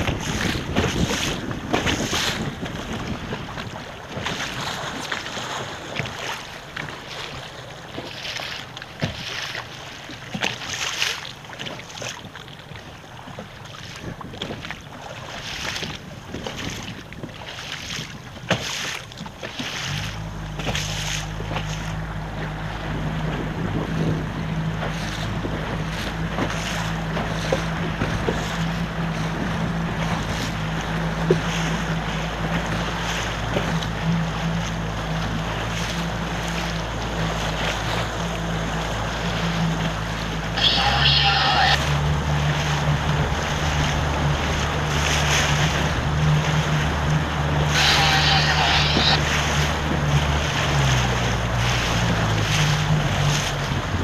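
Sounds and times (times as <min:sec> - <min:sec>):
wind buffeting microphone: 0:00.0 - 0:06.2, 0:12.2 - 0:18.5, 0:20.6 - 0:40.2, 0:49.0 - 0:54.0
water splashing against boat: 0:00.0 - 0:54.0.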